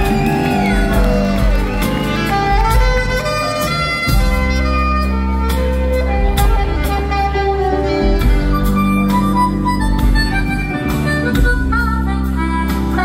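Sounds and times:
rock band playing live: 0.0 - 13.0
wind instrument holding long notes: 0.0 - 13.0.

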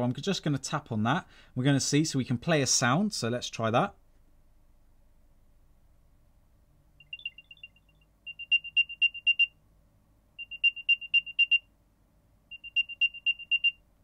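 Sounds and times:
muffled high-pitched chirps: 7.0 - 9.5, 10.4 - 11.7, 12.5 - 13.8.

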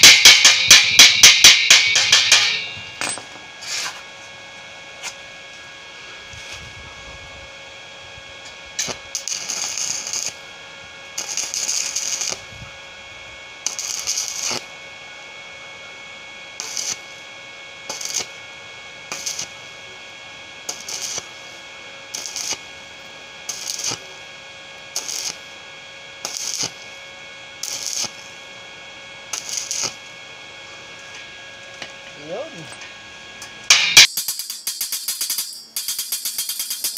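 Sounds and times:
welding arc crackling and hissing: 0.0 - 2.7, 8.4 - 32.7.

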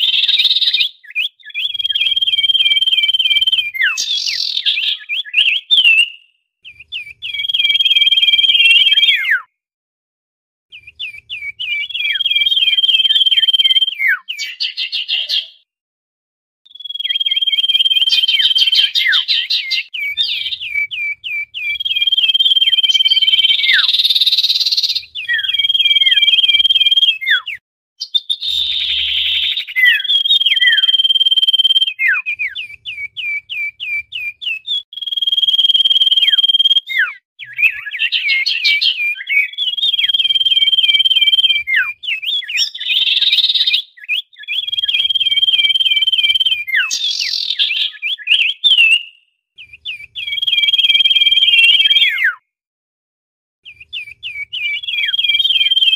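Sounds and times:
bird whistling calls: 0.0 - 9.5, 10.7 - 15.6, 16.7 - 52.4, 53.6 - 55.9.

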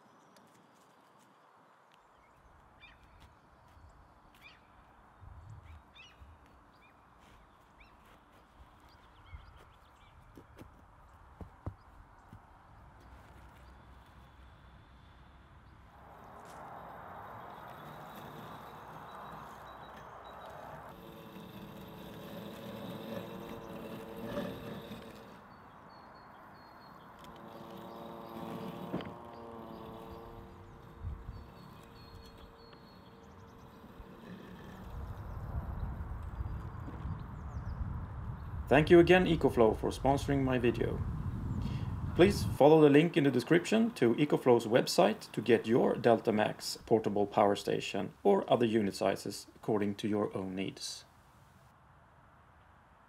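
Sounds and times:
small birds chirping: 0.0 - 40.2
robotic lawn mower running: 15.9 - 37.5.

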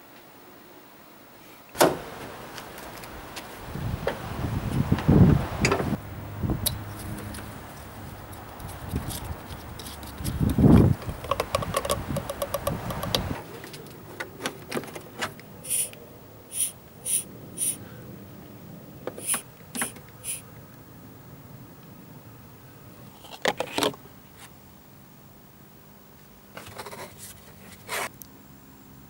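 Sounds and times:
handling noise: 6.8 - 15.9
hand vacuum pump hissing: 15.6 - 17.8, 19.1 - 20.4.

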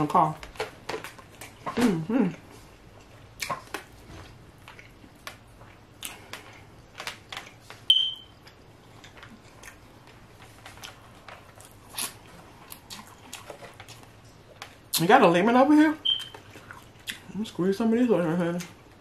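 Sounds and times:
high electronic beep: 7.9 - 8.3, 16.0 - 16.3.

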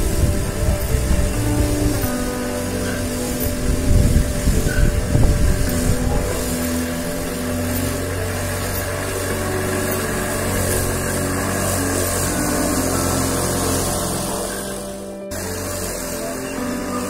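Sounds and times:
electric lawn mower cutting grass: 0.0 - 17.0.

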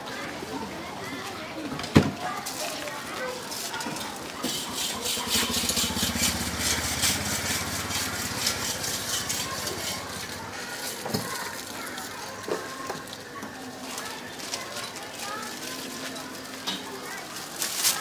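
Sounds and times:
small motorbike engine humming: 4.5 - 11.0.

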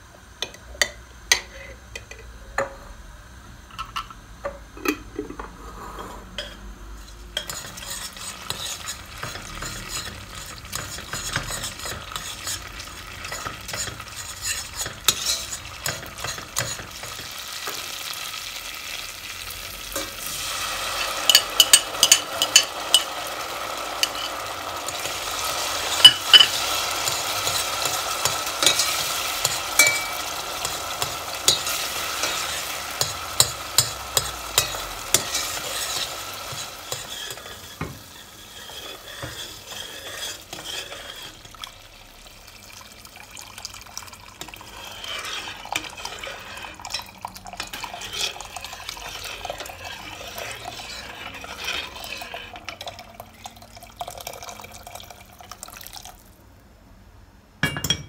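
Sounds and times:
oil frying: 7.0 - 56.7
metal spoon scraping a pot: 7.4 - 17.8, 21.0 - 23.2, 23.8 - 41.7, 44.4 - 53.0
loud sizzle: 7.4 - 52.5.

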